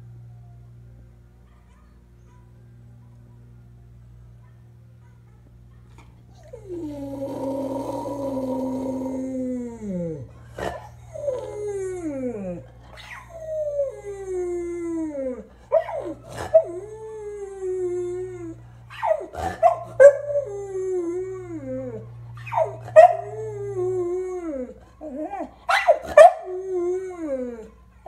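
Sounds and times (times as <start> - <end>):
dog howling: 6.3 - 27.9.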